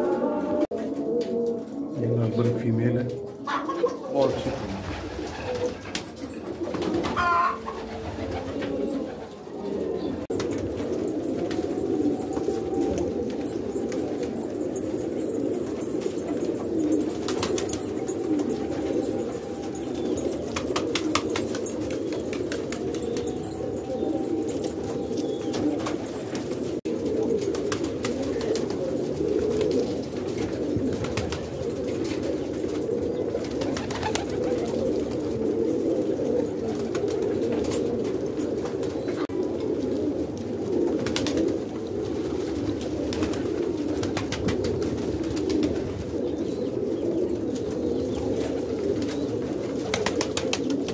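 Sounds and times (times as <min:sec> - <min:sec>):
pigeons cooing: 0:00.0 - 0:50.9.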